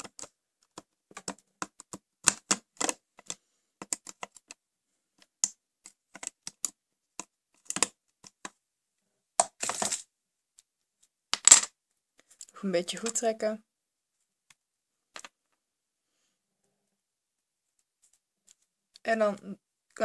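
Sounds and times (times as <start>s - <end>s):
crochet hook clicking on plastic pins: 0.0s - 4.6s, 5.2s - 8.6s.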